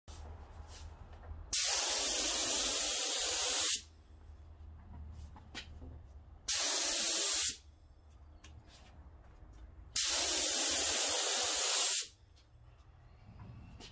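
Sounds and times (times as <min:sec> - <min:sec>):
spray gun hissing: 0:01.5 - 0:03.9, 0:06.5 - 0:07.6, 0:10.0 - 0:12.1.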